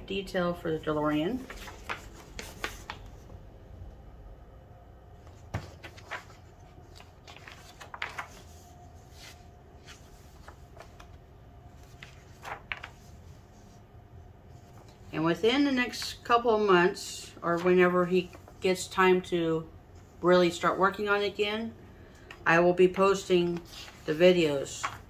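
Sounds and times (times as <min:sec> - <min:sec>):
magazine pages rustling: 0:01.2 - 0:03.3, 0:05.2 - 0:13.8, 0:22.2 - 0:25.0.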